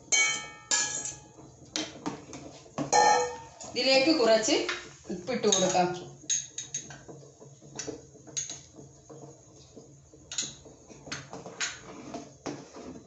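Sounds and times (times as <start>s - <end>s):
metal spoon knocking bowls and pot: 0.1s - 1.2s, 3.0s - 3.5s, 5.4s - 6.9s.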